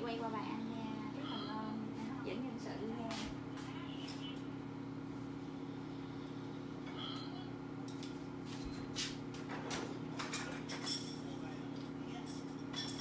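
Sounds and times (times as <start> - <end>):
light kitchen clatters: 7.8 - 13.0.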